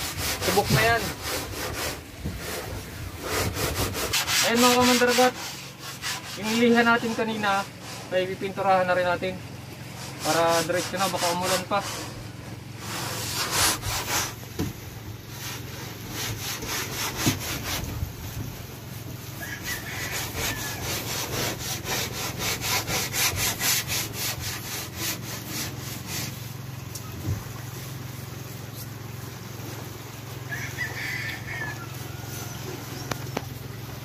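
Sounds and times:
paintbrush swishing on wood: 0.0 - 8.6, 9.9 - 29.0.

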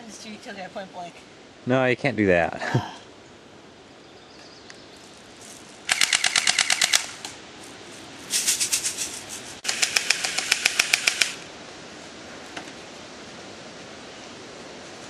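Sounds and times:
airsoft guns firing bursts: 5.9 - 7.2, 9.6 - 11.4.

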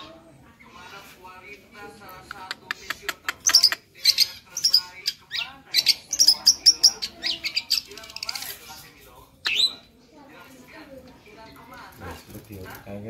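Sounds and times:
bird singing: 3.4 - 8.4, 9.4 - 9.9.

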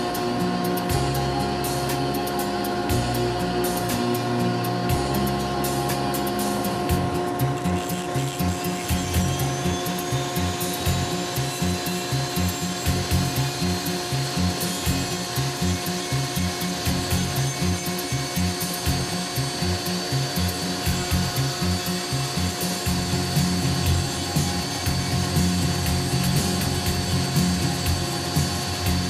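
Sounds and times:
rotary tool motor whine: 0.0 - 29.0
bit cutting wood: 5.9 - 29.0.

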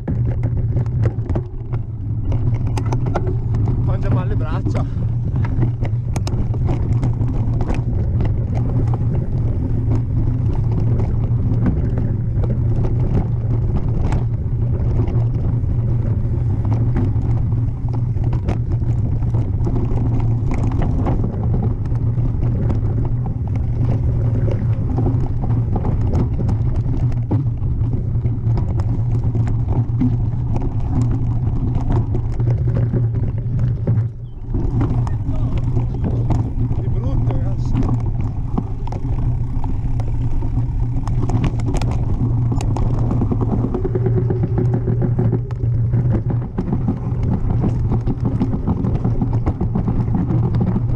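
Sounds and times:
bike rattling and knocking: 0.0 - 50.9
rumble of wind and tyres: 0.0 - 50.9.

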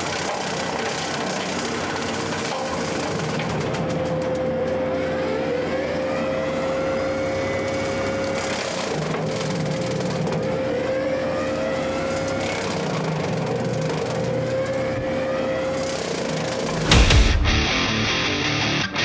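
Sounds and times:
mower blades whining: 0.0 - 18.9
diesel engine: 0.0 - 19.0.

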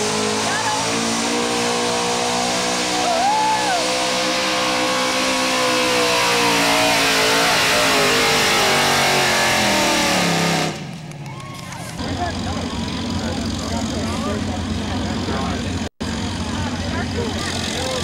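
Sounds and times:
truck engine running at high revs: 0.0 - 18.0.

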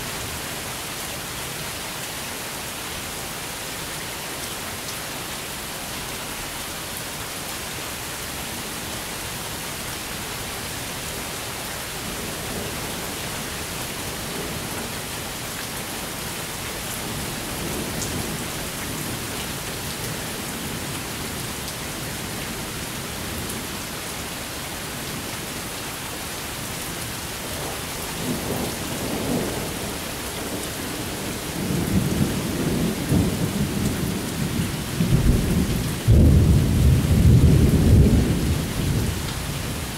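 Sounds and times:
steady rain hissing: 0.0 - 39.9
rolling thunder: 35.0 - 39.2.

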